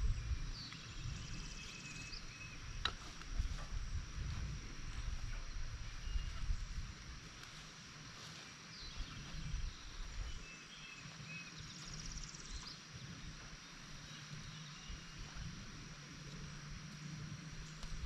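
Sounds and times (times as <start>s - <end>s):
birds chirping: 0.0s - 3.7s
high insect hum: 0.0s - 18.0s
wind rumble on microphone: 0.0s - 18.0s.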